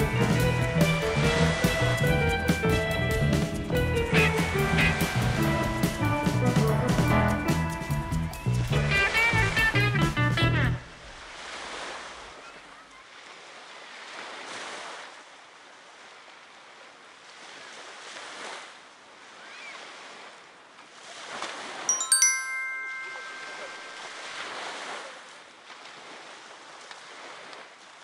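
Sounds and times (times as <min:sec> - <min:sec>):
small waves washing on sand: 0:11.0 - 0:21.9, 0:23.2 - 0:28.0
small bell ringing: 0:21.9 - 0:24.4.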